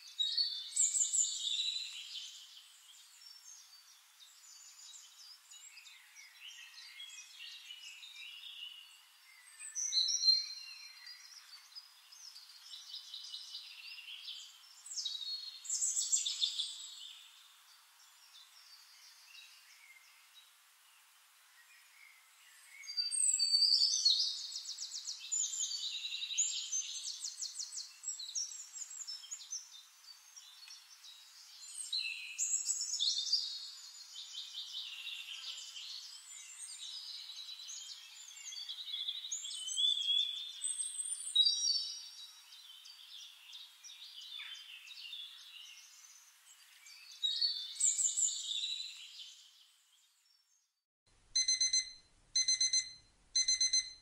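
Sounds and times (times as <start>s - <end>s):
songbirds chirping: 0.0s - 50.8s, 51.4s - 54.0s
alarm clock beeping: 51.4s - 54.0s.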